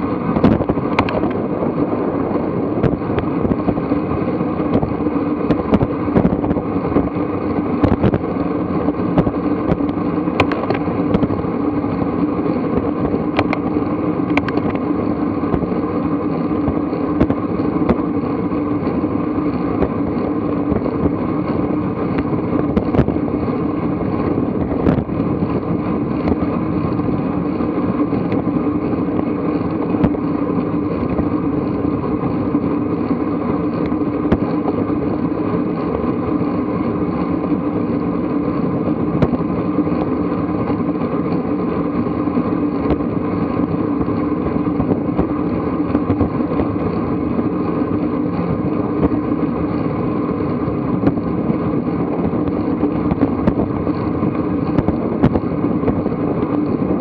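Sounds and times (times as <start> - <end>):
bicycle tyre rumble on asphalt: 0.0 - 57.0
wind rush on microphone: 0.0 - 57.0.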